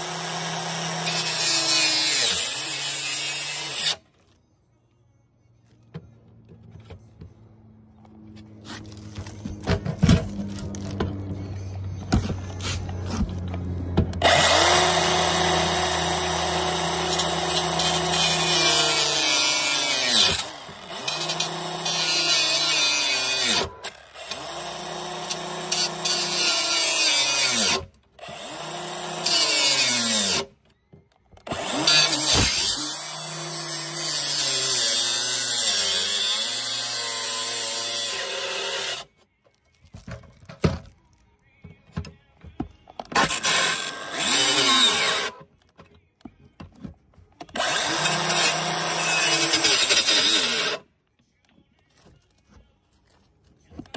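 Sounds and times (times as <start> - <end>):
circular saw cutting: 0.0 - 4.0, 14.2 - 30.5, 31.5 - 39.1, 43.2 - 45.4, 47.6 - 50.8.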